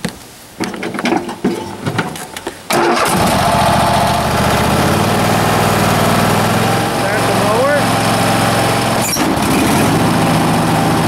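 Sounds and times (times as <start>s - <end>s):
lawn tractor engine running: 2.7s - 11.0s.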